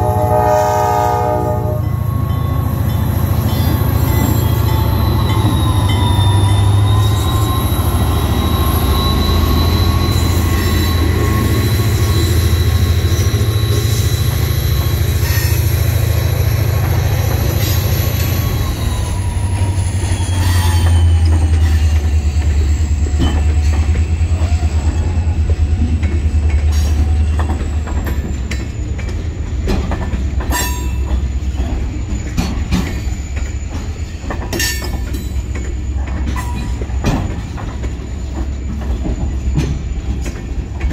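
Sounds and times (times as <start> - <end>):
freight train rumbling: 0.0 - 40.9
train wheels squealing: 1.7 - 40.9
wheels clicking over rail joints: 16.8 - 40.9.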